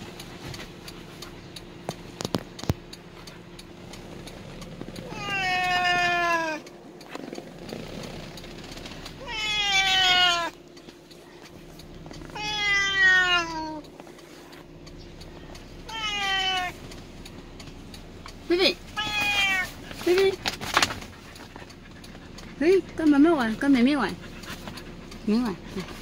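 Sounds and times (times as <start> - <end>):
kitten meowing: 5.1 - 6.6, 9.2 - 10.5, 12.3 - 13.8, 15.8 - 16.8, 18.9 - 19.8.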